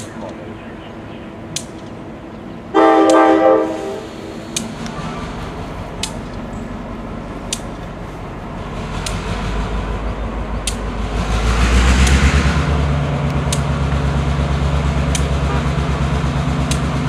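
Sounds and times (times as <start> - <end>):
diesel locomotive drone: 0.0 - 17.0
sharp clicks: 1.5 - 2.0, 4.5 - 6.5, 7.4 - 7.9, 9.0 - 11.1.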